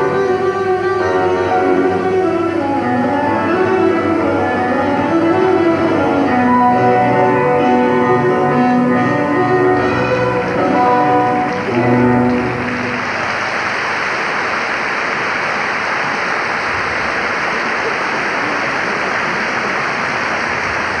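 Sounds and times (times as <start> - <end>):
instrumental music: 0.0 - 13.1
audience applause: 9.9 - 21.0.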